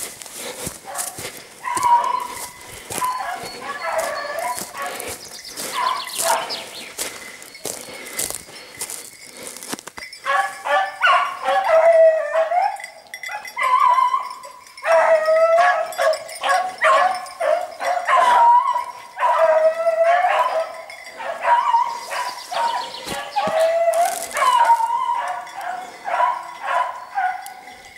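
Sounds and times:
hounds baying: 0.0s - 27.9s.

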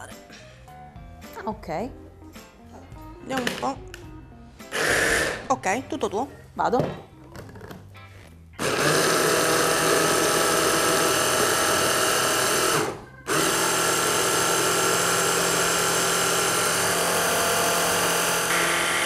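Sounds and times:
hand blender motor whining: 4.7s - 5.4s, 8.6s - 19.0s.

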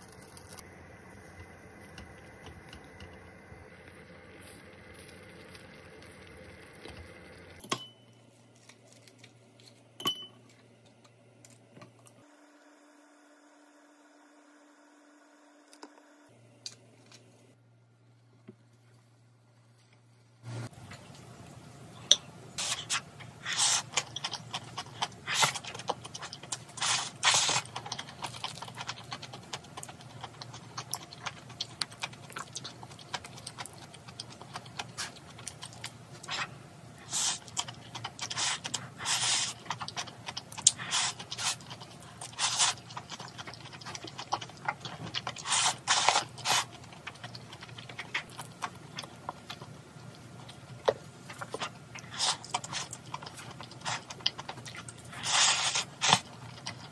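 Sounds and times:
chewing: 22.6s - 56.9s
person slurping noodles: 55.1s - 56.3s.

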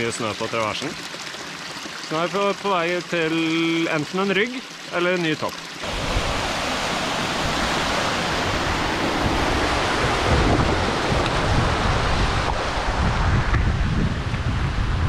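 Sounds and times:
stream rushing over rock: 0.0s - 13.7s
wind buffeting the microphone: 5.8s - 15.0s.

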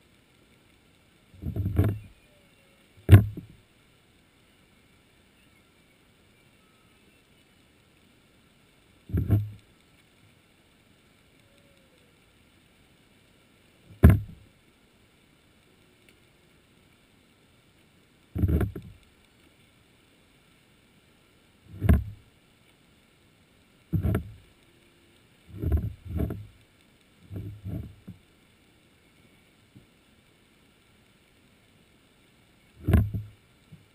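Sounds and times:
muffled underwater thuds: 1.4s - 2.1s, 3.0s - 3.6s, 9.1s - 9.6s, 13.9s - 14.4s, 18.4s - 19.0s, 21.7s - 22.2s, 23.9s - 24.4s, 25.5s - 26.5s, 27.3s - 28.2s, 32.8s - 33.3s
faint steady high tones: 1.9s - 12.6s, 28.4s - 29.8s.

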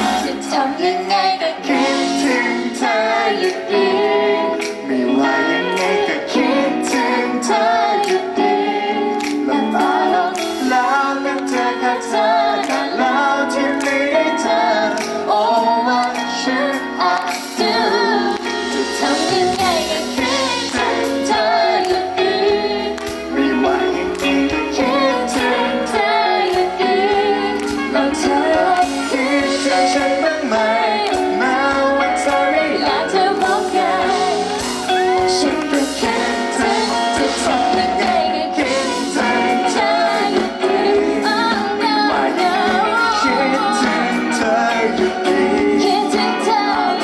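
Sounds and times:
woman singing: 0.0s - 8.5s, 9.6s - 47.0s
electric guitar: 0.0s - 47.0s
man singing: 9.8s - 12.2s, 23.3s - 25.5s, 28.0s - 32.8s, 35.0s - 40.0s, 42.4s - 47.0s.

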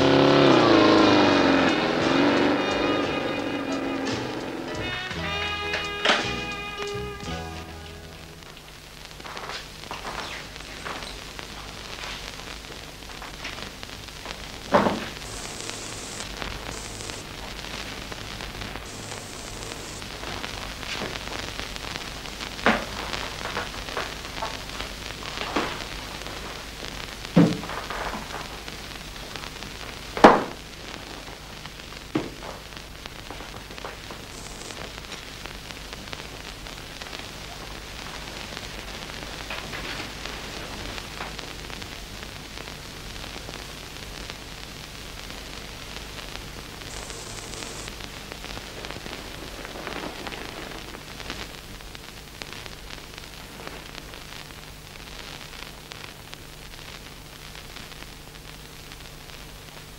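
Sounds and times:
soundtrack hiss: 0.0s - 59.9s
faint low hum: 14.5s - 21.8s.

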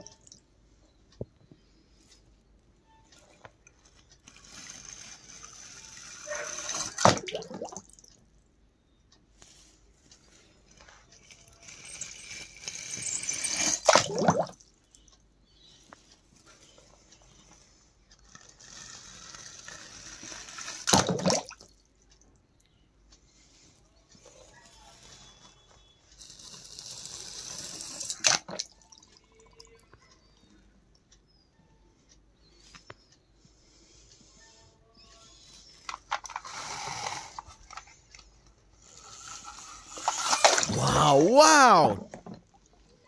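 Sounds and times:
water pouring: 6.6s - 8.1s, 12.8s - 14.6s, 40.0s - 42.4s.

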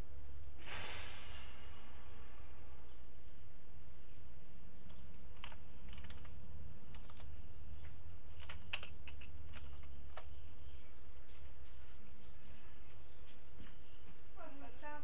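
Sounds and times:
low hum: 0.0s - 15.0s
keyboard keys clicking: 4.9s - 7.3s, 8.4s - 10.3s.

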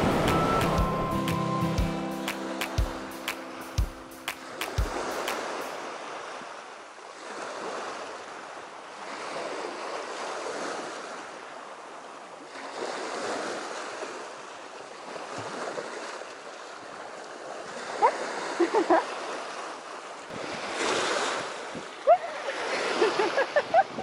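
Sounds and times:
wind on microphone: 0.0s - 1.3s, 20.3s - 22.2s, 23.1s - 24.0s
small waves washing on concrete: 4.3s - 24.0s.

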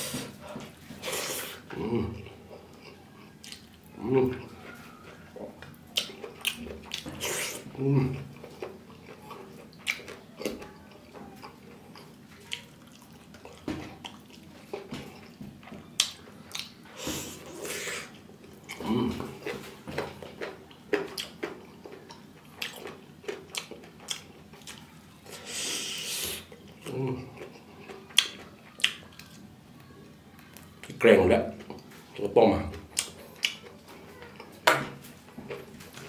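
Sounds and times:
wet chewing and mouth smacking: 1.0s - 31.0s, 32.7s - 36.0s.

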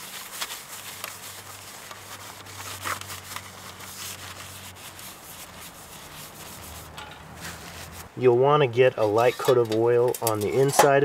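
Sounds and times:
paper crinkling: 0.0s - 8.1s
paper towel wiping metal tin: 0.0s - 10.8s.

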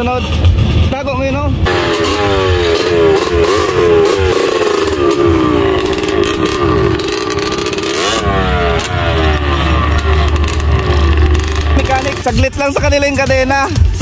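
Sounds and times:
dirt bike engine revving: 1.6s - 13.3s.

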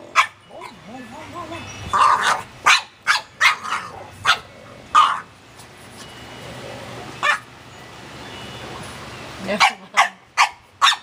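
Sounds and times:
dog barking: 2.0s - 4.4s, 9.6s - 11.0s.

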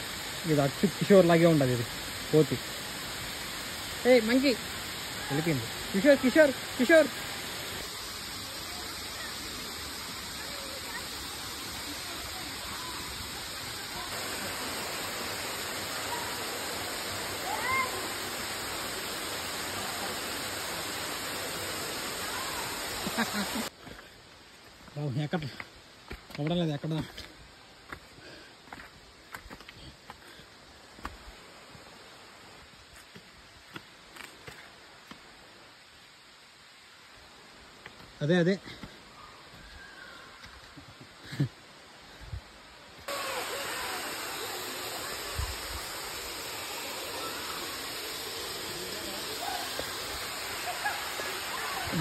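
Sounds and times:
waterfall rushing: 0.0s - 23.7s, 43.0s - 52.0s.

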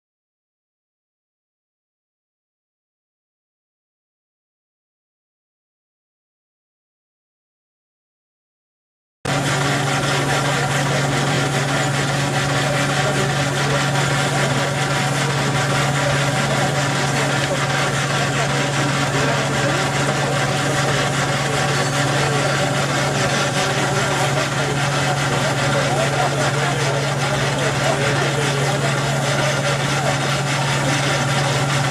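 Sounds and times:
engines running: 9.3s - 31.9s
steam traction engine: 9.3s - 31.9s.

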